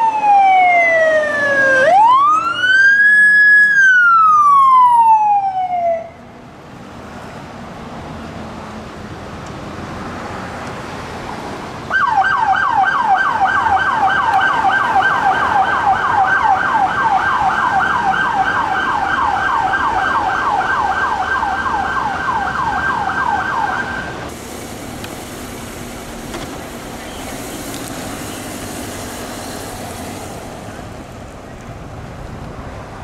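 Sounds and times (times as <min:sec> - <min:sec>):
electronic siren yelping: 0:00.0 - 0:06.2, 0:11.9 - 0:24.1
road traffic noise: 0:00.0 - 0:33.0.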